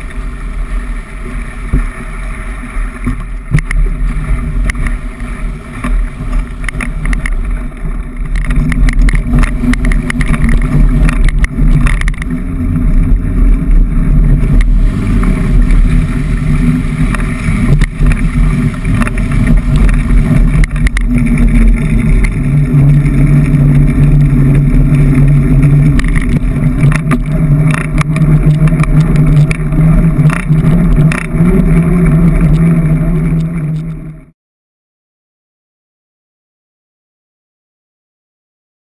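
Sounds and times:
steady hum: 0.0s - 34.3s
tyre and wind rumble: 0.0s - 34.3s
bike rattling clicks: 5.7s - 13.2s, 14.3s - 34.1s.

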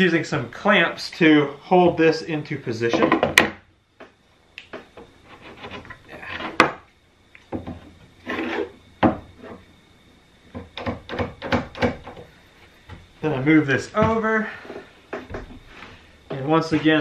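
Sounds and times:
wooden straight-edge scraping on plywood: 5.2s - 6.6s, 8.2s - 8.8s.

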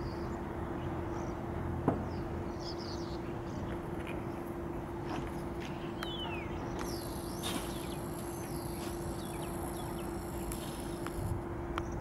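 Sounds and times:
steady mechanical hum: 0.0s - 12.0s
birds whistling: 5.8s - 11.2s.

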